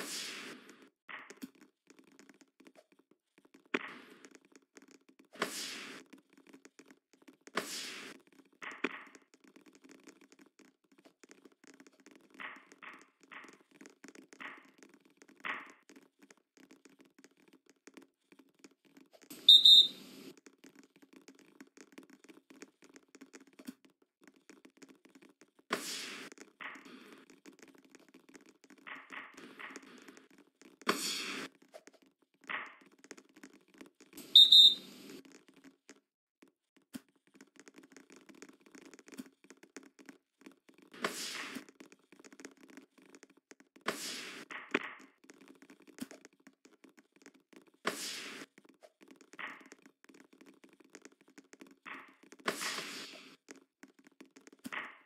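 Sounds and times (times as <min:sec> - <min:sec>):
referee's whistle: 0:19.5 - 0:20.0, 0:34.4 - 0:34.8.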